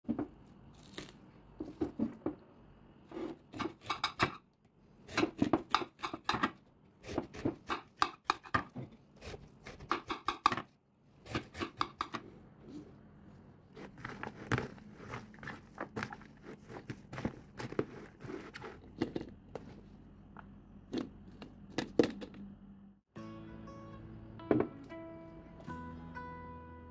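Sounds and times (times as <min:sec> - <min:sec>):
watermelon crunching and cracking: 0:00.8 - 0:01.3.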